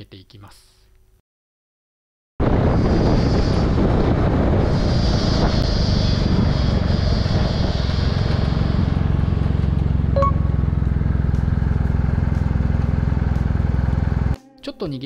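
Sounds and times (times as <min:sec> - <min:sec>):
brake hiss: 0:02.8 - 0:09.8
motorcycle engine idling: 0:09.6 - 0:14.4
short beep: 0:10.1 - 0:10.6.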